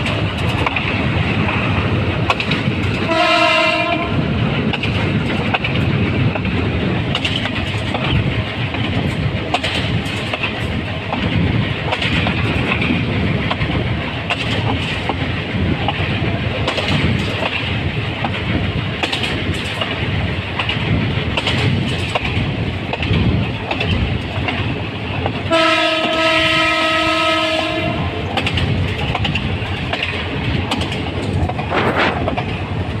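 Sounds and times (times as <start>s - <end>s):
train wheels clattering on rails: 0.0s - 33.0s
locomotive horn blast: 3.0s - 4.2s, 25.5s - 28.2s.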